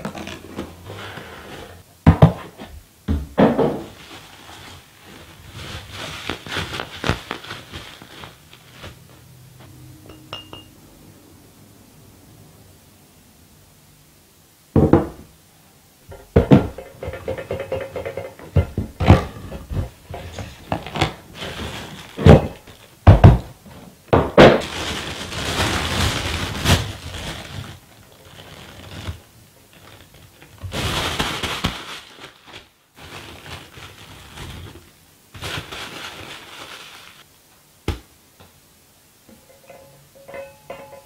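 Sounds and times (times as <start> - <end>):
plastic bags crinkling: 3.9 - 9.4, 19.1 - 23.0, 24.6 - 37.3.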